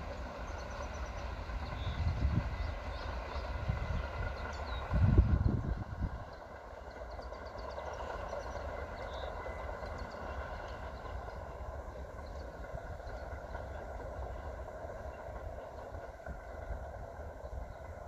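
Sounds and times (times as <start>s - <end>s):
wind buffeting microphone: 1.1s - 7.1s.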